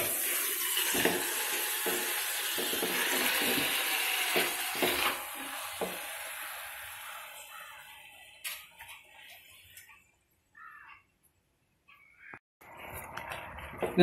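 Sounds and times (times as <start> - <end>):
hot oil sizzling: 0.0 - 9.3.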